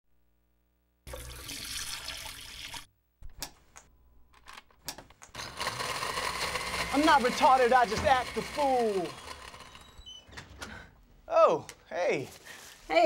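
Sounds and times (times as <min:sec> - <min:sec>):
liquid pouring into sink drain: 0:01.1 - 0:02.9.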